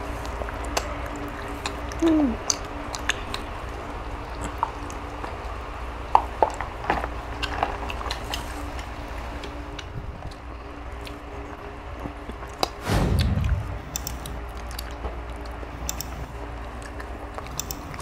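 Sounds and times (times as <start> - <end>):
eating clicks and smacks: 1.6 - 3.5, 16.8 - 18.0
steady low hum: 12.7 - 17.4
short low falling tone: 12.8 - 14.6.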